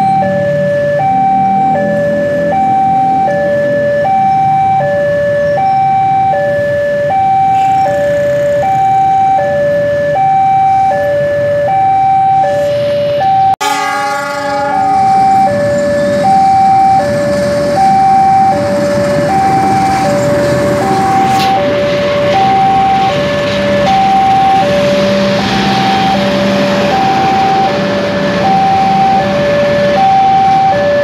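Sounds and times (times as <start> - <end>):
diesel locomotive running: 0.0 - 31.0
two-tone railway warning alarm: 0.0 - 31.0
locomotive horn blast: 13.6 - 30.0.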